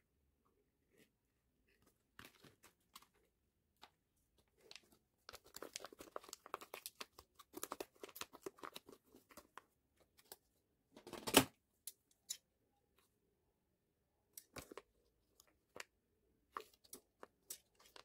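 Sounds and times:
packaging crinkling: 0:04.6 - 0:09.6.

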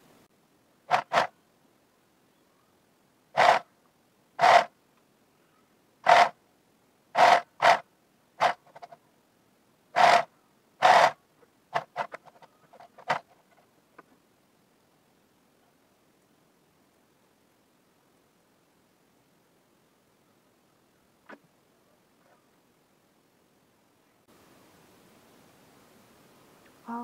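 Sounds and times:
electric sewing machine stitching: 0:10.0 - 0:11.2.

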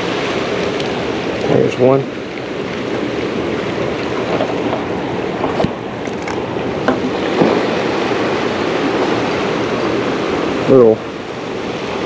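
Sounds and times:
turbulent water churning: 0:00.0 - 0:12.0.

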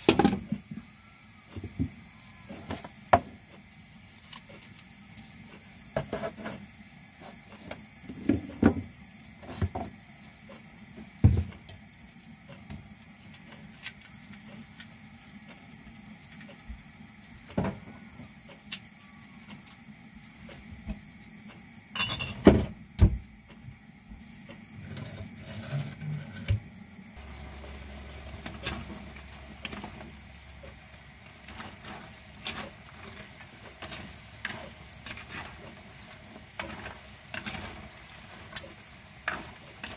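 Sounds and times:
spatula stirring in pan: 0:01.5 - 0:08.2, 0:27.2 - 0:39.9
food hissing in wok: 0:24.2 - 0:39.9.

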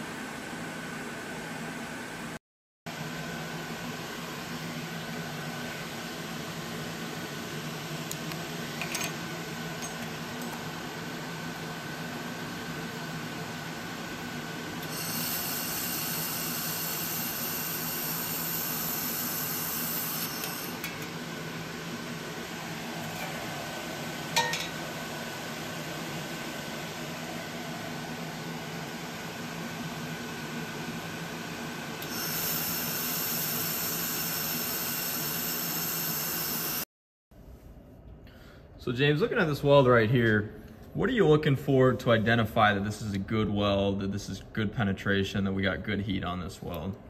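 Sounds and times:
laser welder hissing: 0:14.8 - 0:20.8, 0:32.0 - 0:36.8.

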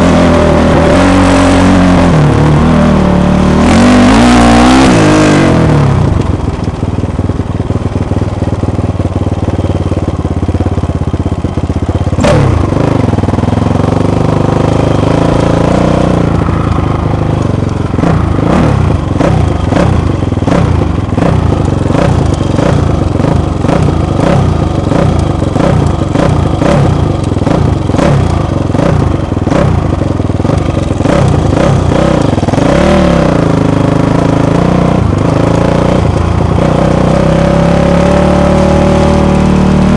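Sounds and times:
dirt bike engine revving: 0:00.0 - 0:06.5, 0:12.1 - 0:39.9.

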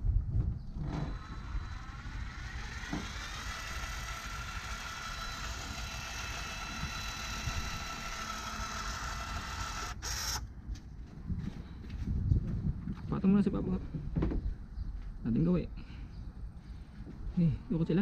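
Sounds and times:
electric caulking gun motor whining: 0:00.8 - 0:10.5.

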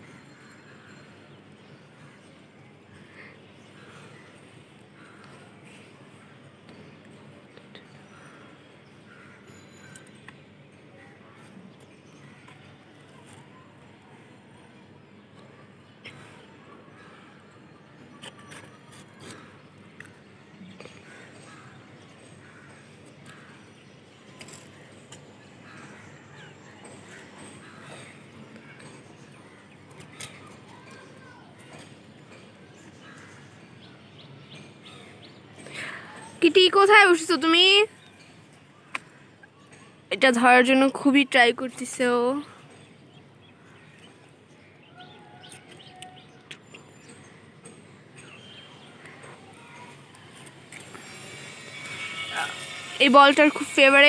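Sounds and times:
distant bird calls: 0:15.2 - 0:54.0.

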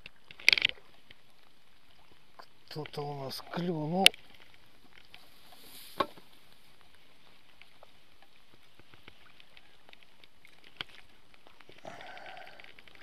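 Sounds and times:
light rain hiss: 0:00.0 - 0:13.0
raindrops ticking: 0:08.8 - 0:13.0.

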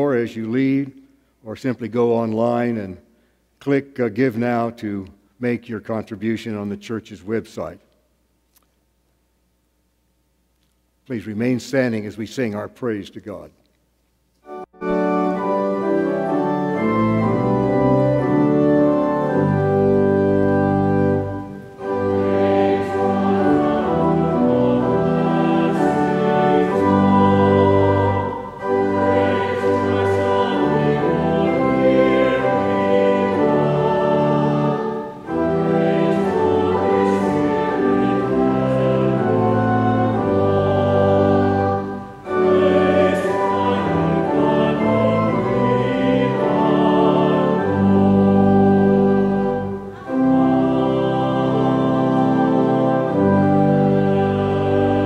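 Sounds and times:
church organ: 0:00.0 - 0:07.9, 0:08.9 - 0:55.0
congregation singing a hymn: 0:14.5 - 0:55.0.

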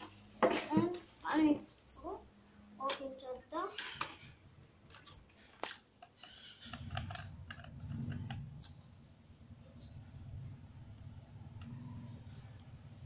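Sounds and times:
bird chirping: 0:01.5 - 0:02.2, 0:06.2 - 0:10.5.

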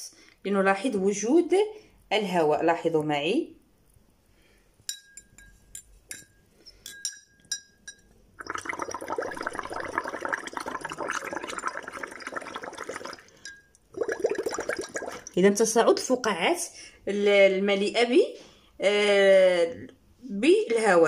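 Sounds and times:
pen clinking against glass: 0:04.9 - 0:08.1
bubbling in glass of water: 0:08.4 - 0:15.6.

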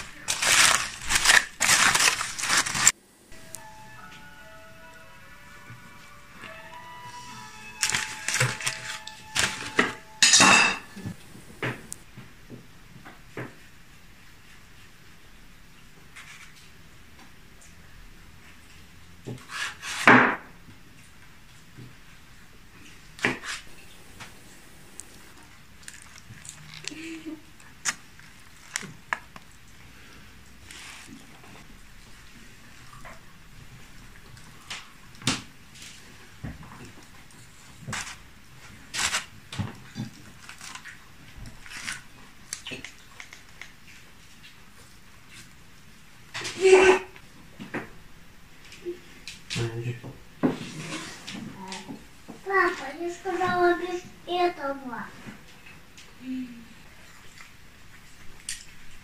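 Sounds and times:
knife cutting through crackly foil: 0:00.0 - 0:03.0, 0:07.8 - 0:09.9, 0:38.9 - 0:39.3, 0:40.0 - 0:42.8.

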